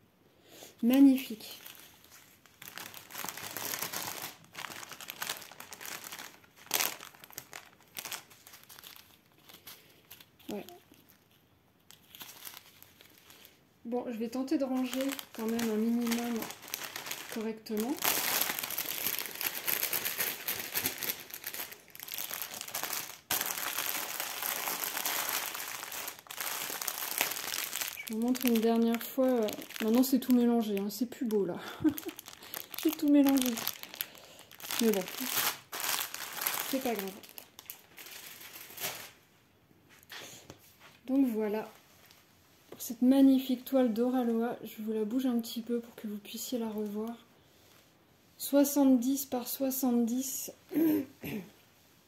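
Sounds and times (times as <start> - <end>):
plastic bags crinkling: 0.8 - 39.2.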